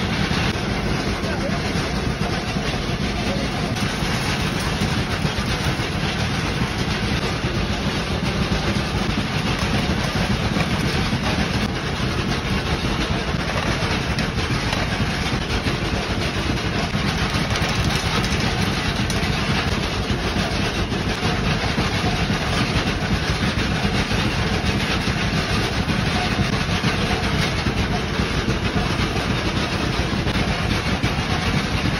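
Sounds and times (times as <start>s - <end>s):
machine drone with low hum: 0.0s - 31.9s.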